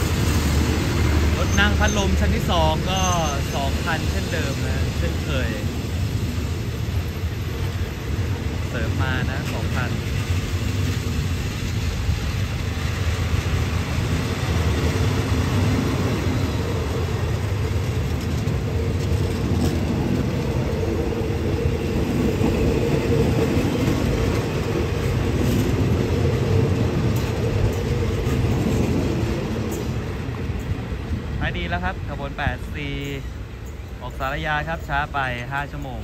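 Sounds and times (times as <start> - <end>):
train wheels rumbling on rails: 0.0 - 36.0
faint rail clacks: 7.5 - 21.3, 22.0 - 36.0.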